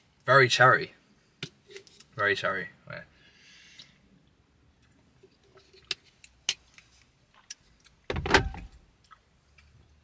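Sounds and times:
loud breath out: 3.2s - 4.0s.

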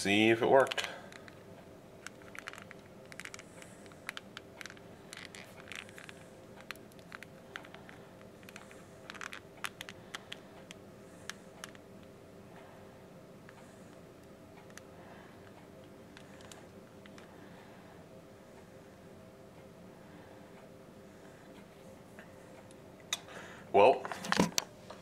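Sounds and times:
faint steady hum: 0.0s - 25.0s
phone case clicking and scraping: 2.0s - 10.4s, 24.2s - 24.6s.

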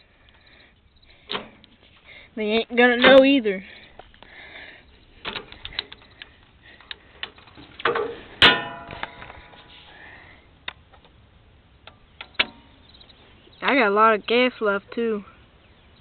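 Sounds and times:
sharp metallic clank: 7.8s - 9.6s, 12.2s - 12.8s
clicks and knocks on metal controls: 11.8s - 12.6s.

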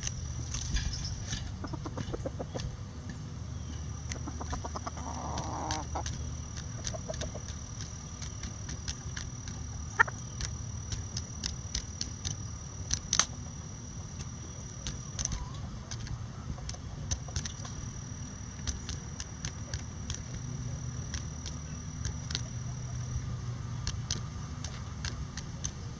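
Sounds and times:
chickens clucking softly: 1.5s - 2.8s, 4.0s - 8.4s, 9.6s - 10.3s
sharp peck clicks: 1.6s - 25.9s.

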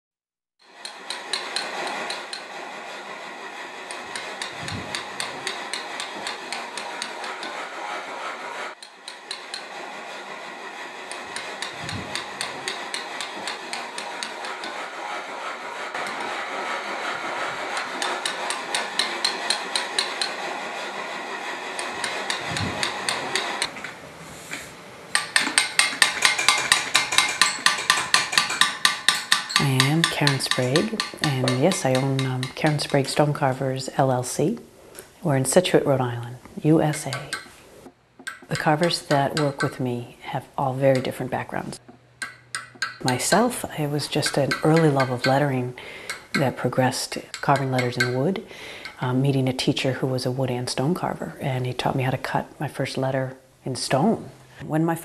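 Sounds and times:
mallet striking steel chisel: 0.6s - 2.5s, 3.9s - 7.6s, 8.8s - 9.8s, 11.1s - 14.8s, 17.8s - 20.4s, 21.8s - 23.7s, 25.1s - 33.3s, 36.9s - 37.6s, 38.2s - 39.8s, 42.2s - 49.0s.

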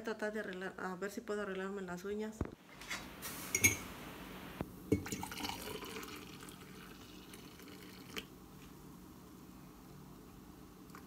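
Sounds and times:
water pouring into mug: 5.0s - 8.3s.

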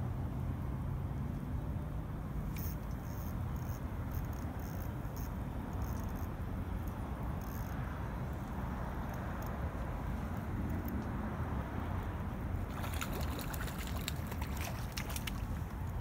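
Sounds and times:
fishing reel clicking: 2.6s - 7.8s.

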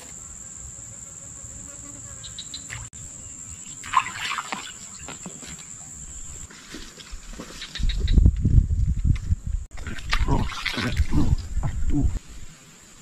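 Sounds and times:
short insect chirps: 0.0s - 6.5s
insects trilling: 0.0s - 6.6s.

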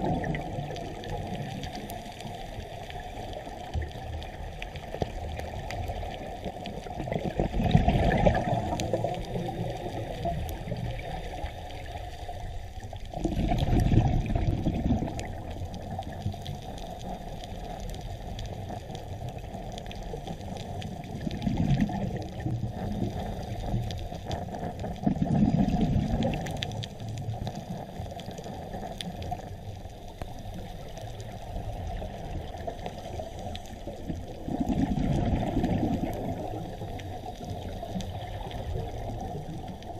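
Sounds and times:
gurgling exhaled bubbles: 0.0s - 39.9s
underwater rush of water: 0.0s - 39.9s.

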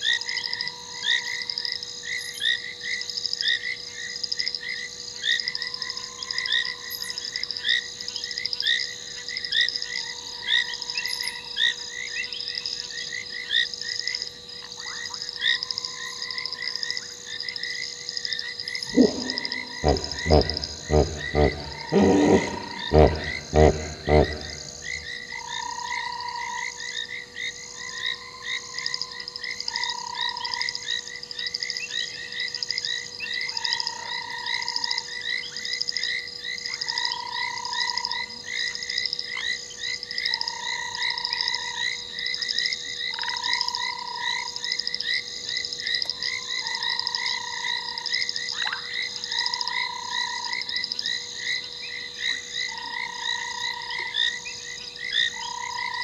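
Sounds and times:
high-pitched frog calls pulsing: 18.7s - 26.7s
lower frog call: 18.8s - 26.7s.

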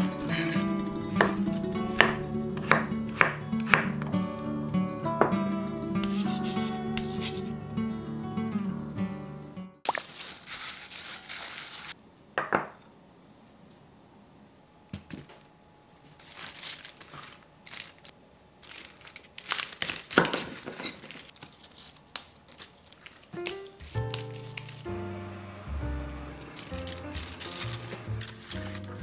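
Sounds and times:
leaves rustling: 9.9s - 12.0s, 16.1s - 29.0s.

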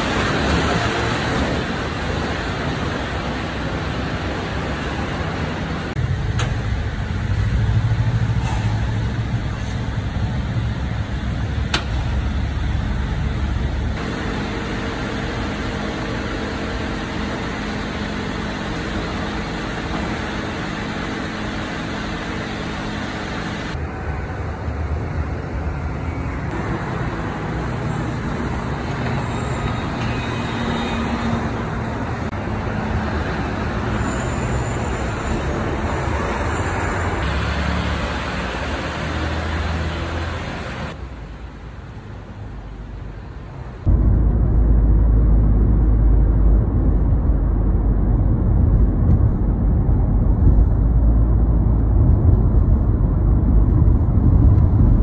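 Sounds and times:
garbage truck engine humming: 0.0s - 24.4s
road traffic: 0.0s - 55.0s.

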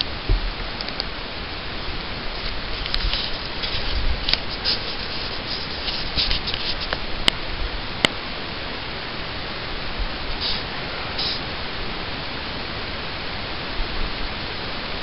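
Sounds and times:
microphone hiss: 0.0s - 15.0s
camera handling crackle and rubbing: 2.4s - 7.0s.

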